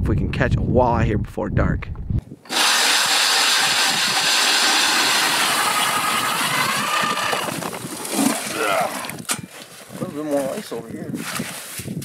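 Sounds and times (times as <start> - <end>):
ice auger grinding through ice: 2.5 - 9.2.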